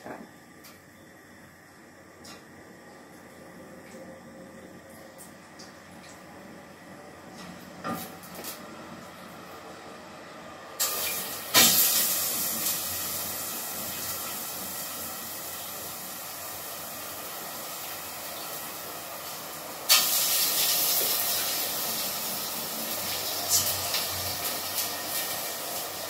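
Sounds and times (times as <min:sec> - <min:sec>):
chicken sizzling in hot oil: 0:10.8 - 0:26.0.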